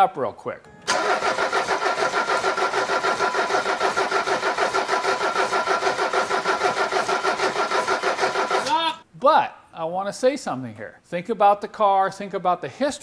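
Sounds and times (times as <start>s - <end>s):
starter motor whine: 0.9s - 8.7s
diesel engine cranking: 0.9s - 8.8s.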